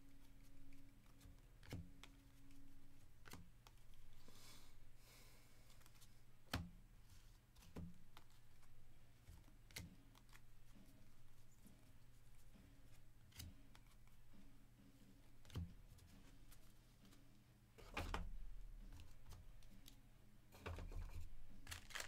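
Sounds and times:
low steady hum: 0.0 - 22.0
cards being flipped: 0.2 - 4.3, 5.7 - 11.5, 12.4 - 14.2, 21.0 - 22.0
card edges tapping: 0.7 - 4.2, 21.6 - 22.0.

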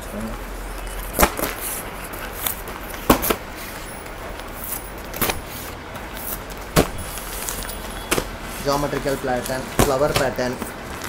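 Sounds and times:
plastic rustling: 0.6 - 11.0
sharp plastic slaps: 1.1 - 1.8, 2.4 - 3.4, 5.0 - 5.5, 6.5 - 10.7.

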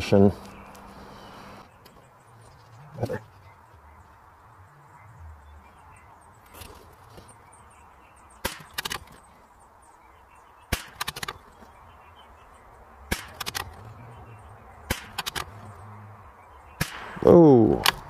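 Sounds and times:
rifle shots: 8.4 - 9.1, 10.7 - 11.4, 13.1 - 13.8, 14.9 - 15.5, 16.8 - 18.0
rifle bolt clicks: 13.1 - 13.8.

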